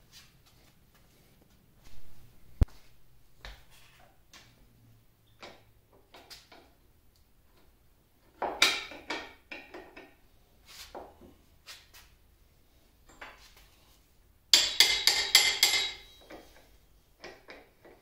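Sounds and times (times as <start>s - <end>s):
hand tools clinking on metal: 14.6s - 16.5s.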